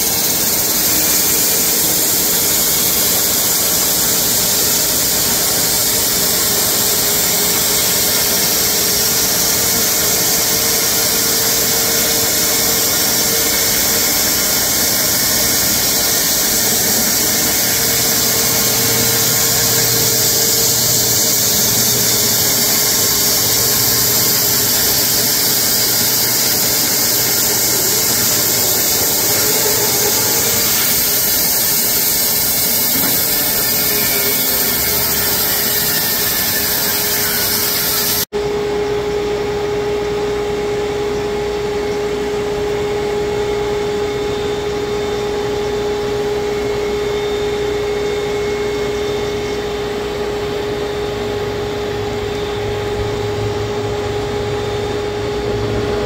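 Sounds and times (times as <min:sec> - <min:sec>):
band sawmill cutting log: 0:00.0 - 0:38.3.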